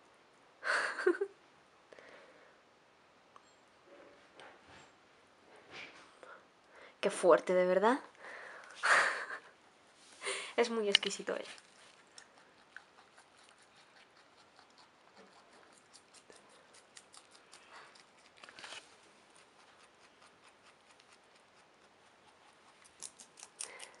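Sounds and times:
rustle: 9.8s - 24.0s
rabbit chewing: 10.8s - 24.0s.

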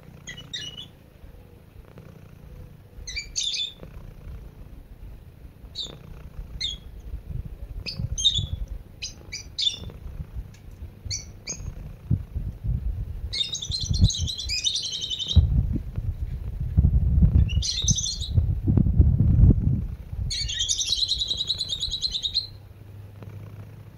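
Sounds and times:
small birds chirping: 0.0s - 12.5s, 13.2s - 15.6s, 17.3s - 18.5s, 20.2s - 22.7s
cat purring: 0.0s - 20.3s, 22.8s - 23.9s.

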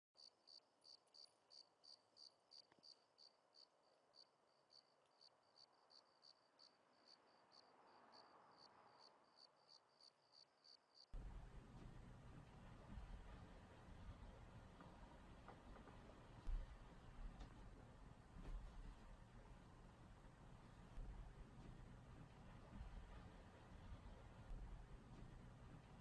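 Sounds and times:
cricket chirping: 0.2s - 11.1s
low room tone hum: 11.2s - 26.0s.

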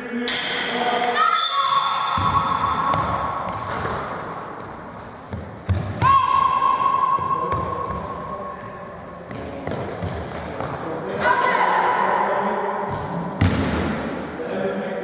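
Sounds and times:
basketball bouncing: 2.2s - 4.0s, 4.6s - 6.2s, 7.2s - 8.1s.

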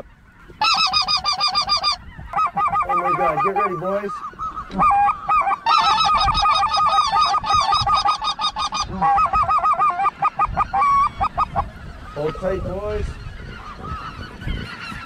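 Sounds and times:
geese yelping calls: 0.0s - 15.0s.

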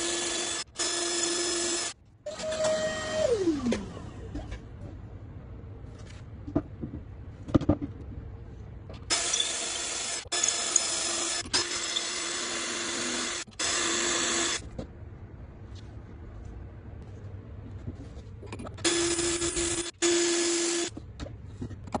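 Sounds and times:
cordless drill boring into board: 0.0s - 1.9s, 9.1s - 14.6s.

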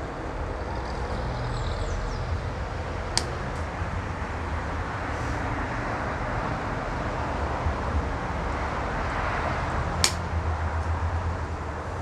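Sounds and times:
sharp click: 10.0s - 10.2s.

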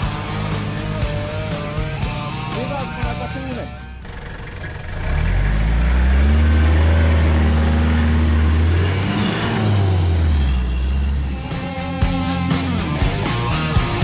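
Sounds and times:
vehicle engine under load: 3.8s - 14.0s.

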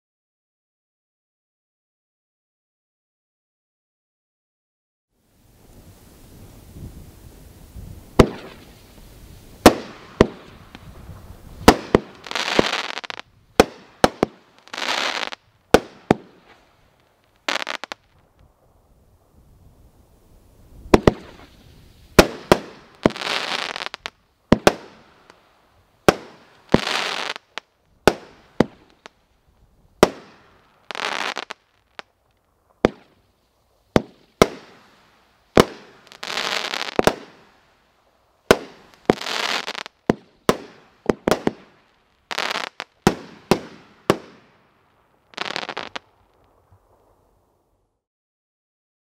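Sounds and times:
crackling fizz of firework stars: 5.2s - 48.0s
firework bangs: 7.8s - 18.0s, 20.8s - 25.4s, 26.0s - 29.1s, 30.0s - 32.1s, 32.7s - 33.2s, 33.9s - 37.6s, 38.4s - 47.2s.

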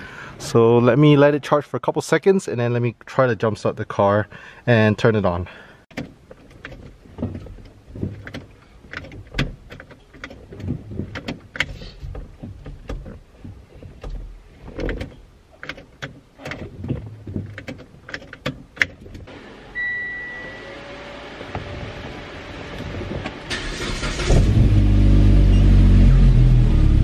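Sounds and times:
clicks and knocks of car controls: 5.9s - 19.3s
short high beep: 19.7s - 20.8s.

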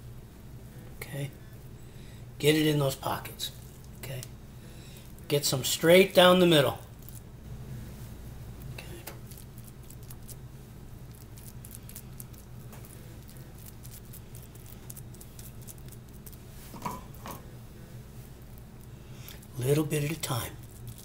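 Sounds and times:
steady low hum: 0.0s - 21.0s
hands squishing and patting food: 3.0s - 7.4s, 8.6s - 17.2s, 18.2s - 21.0s.

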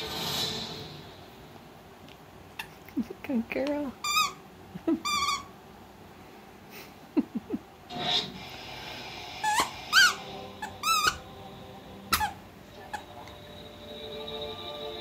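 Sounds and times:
toy squeaker squeaking: 4.0s - 4.4s, 5.0s - 5.5s, 9.5s - 11.2s, 12.1s - 13.0s.

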